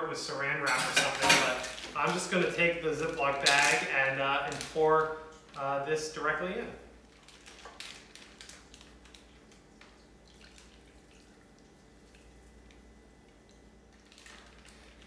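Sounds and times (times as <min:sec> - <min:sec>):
liquid trickling and dripping: 0:07.1 - 0:15.0.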